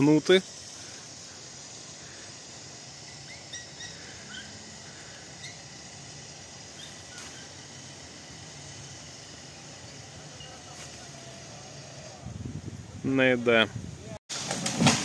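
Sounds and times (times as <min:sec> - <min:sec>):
steady hiss: 0:00.0 - 0:14.2
small birds chirping: 0:00.3 - 0:07.9.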